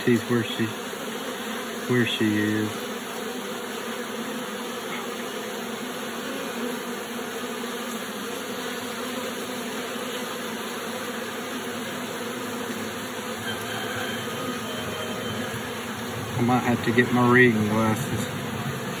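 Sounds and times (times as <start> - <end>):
bees buzzing: 0.0 - 19.0.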